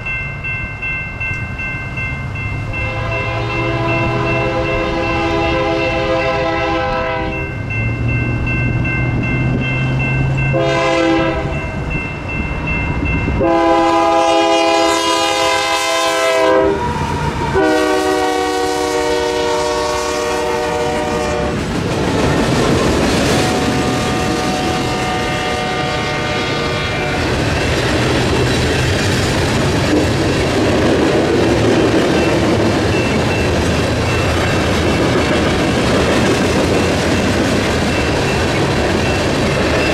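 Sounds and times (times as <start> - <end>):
train cars rumbling and clattering: 0.0 - 39.9
locomotive air horn blasts: 2.8 - 7.4, 10.5 - 11.6, 13.4 - 21.7, 23.3 - 27.4.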